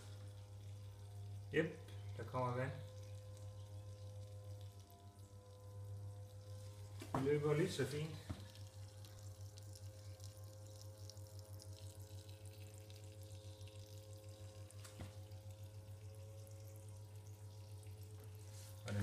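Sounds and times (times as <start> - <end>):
pump humming: 0.0 - 19.0
water trickling: 0.0 - 19.0.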